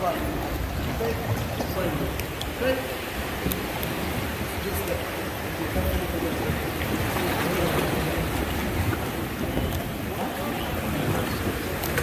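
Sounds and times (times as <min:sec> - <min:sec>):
sea water: 0:00.0 - 0:12.0.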